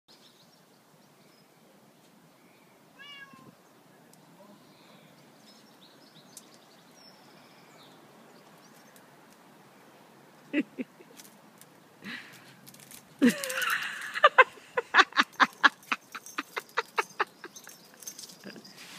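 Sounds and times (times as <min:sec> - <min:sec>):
faint outdoor background: 0:00.1 - 0:18.9
kitten meowing: 0:03.0 - 0:03.5.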